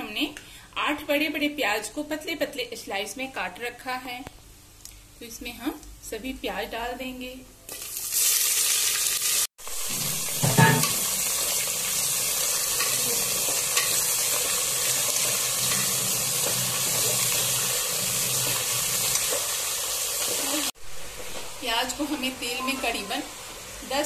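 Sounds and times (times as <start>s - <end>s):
onions sizzling in oil: 7.7s - 24.0s.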